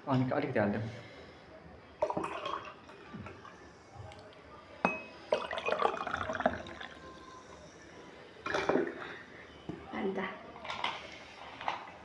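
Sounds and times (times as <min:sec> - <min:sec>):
soda glugging and fizzing: 0:02.0 - 0:03.0, 0:05.3 - 0:07.0
glass clink: 0:04.8 - 0:05.6.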